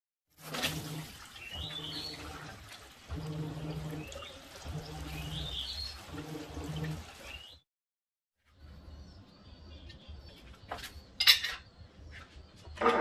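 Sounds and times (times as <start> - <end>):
water splashing into plastic tray: 0.4 - 7.5
bird chirping: 3.5 - 7.6, 8.6 - 12.8.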